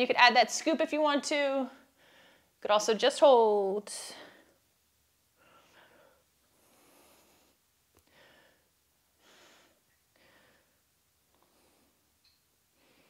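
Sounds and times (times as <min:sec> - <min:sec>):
woman breathing under exertion: 0:05.4 - 0:10.8.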